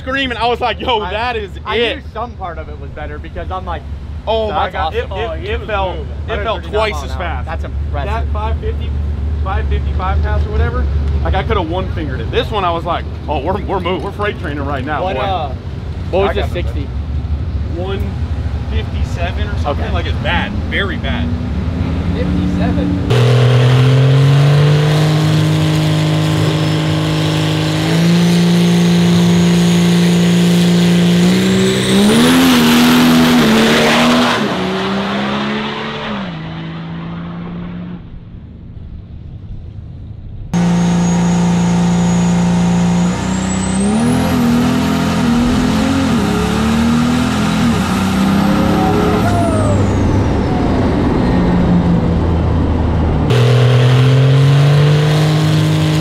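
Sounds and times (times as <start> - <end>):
diesel truck engine at full throttle: 0.0 - 39.7, 40.3 - 56.0
high turbo whistle: 40.6 - 44.8.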